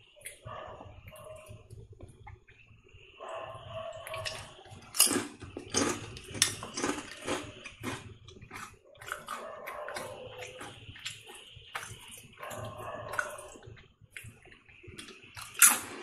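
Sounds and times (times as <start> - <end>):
potato chips crunching: 4.2 - 14.4, 15.0 - 16.0.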